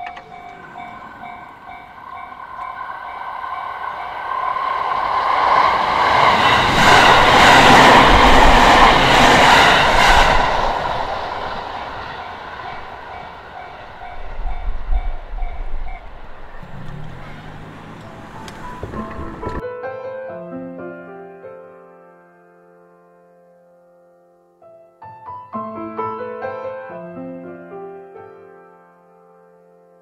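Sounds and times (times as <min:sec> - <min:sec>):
level crossing warning bell: 0:00.0 - 0:05.0, 0:12.2 - 0:18.3
electric train passing: 0:00.0 - 0:19.6
wheels clattering over rail joints: 0:00.0 - 0:19.6.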